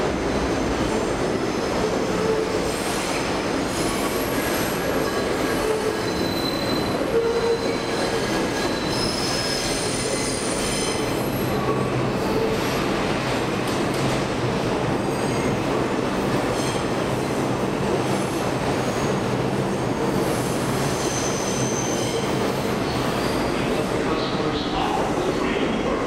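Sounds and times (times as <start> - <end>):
train wheels squealing: 2.2 - 12.6, 16.6 - 16.9, 20.8 - 24.7.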